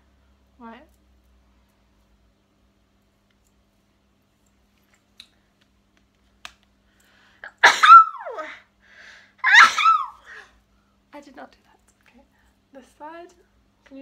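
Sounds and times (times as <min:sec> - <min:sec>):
woman sneezing: 0:07.4 - 0:08.6, 0:09.4 - 0:10.4.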